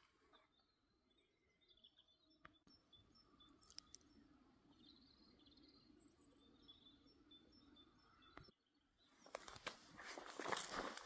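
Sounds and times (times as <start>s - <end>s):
forest ambience: 0.0s - 11.0s
small birds chirping: 0.0s - 11.0s
footsteps on forest floor: 9.2s - 11.0s.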